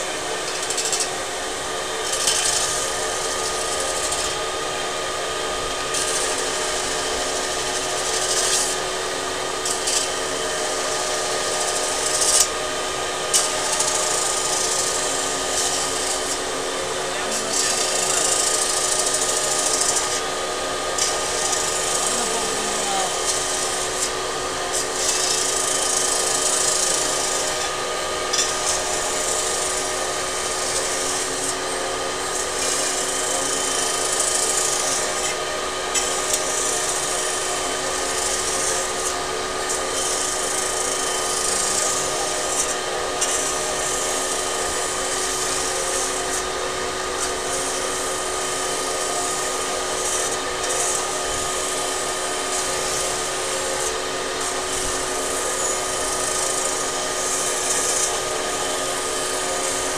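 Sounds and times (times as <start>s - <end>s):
machine hum with fixed tones: 0.0s - 59.9s
rollers hissing on spinning metal: 13.2s - 46.4s.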